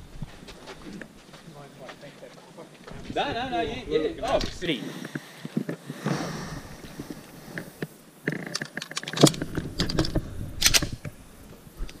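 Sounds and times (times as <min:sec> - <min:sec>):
pistol clicks and rattles: 0:08.3 - 0:11.2.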